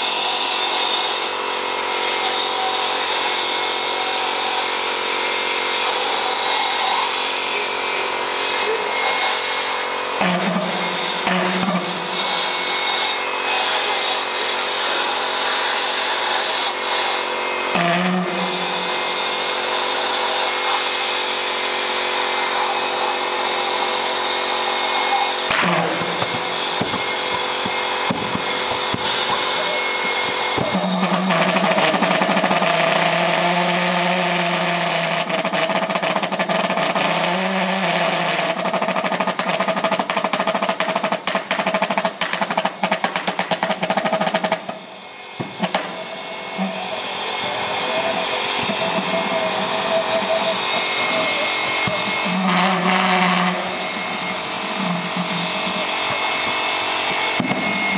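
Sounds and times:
pulse jet engine running: 0.0s - 36.5s, 42.1s - 57.9s
low hum: 44.7s - 57.9s.

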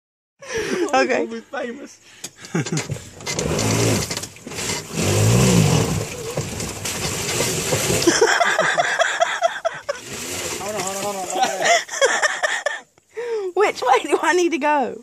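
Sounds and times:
golf cart engine revving: 2.4s - 12.4s
wheels spinning in mud: 2.5s - 12.0s.

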